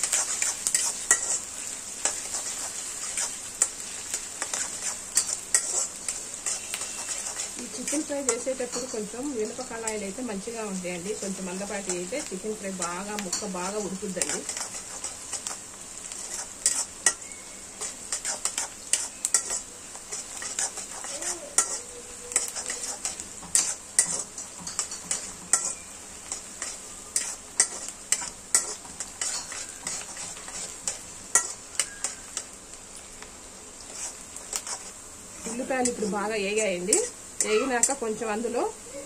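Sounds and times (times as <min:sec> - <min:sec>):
metal spatula scraping a pan: 0:00.0 - 0:32.5, 0:33.8 - 0:38.3
onions sizzling in hot oil: 0:00.0 - 0:39.0.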